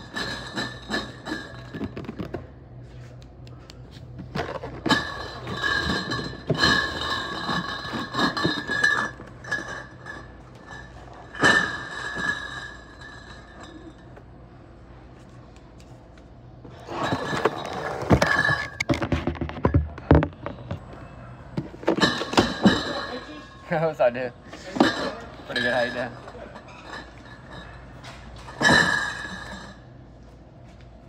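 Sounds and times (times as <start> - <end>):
glass bottles clinking: 0.0 - 2.3, 4.4 - 14.3, 16.8 - 20.8, 21.6 - 24.0, 24.6 - 29.9.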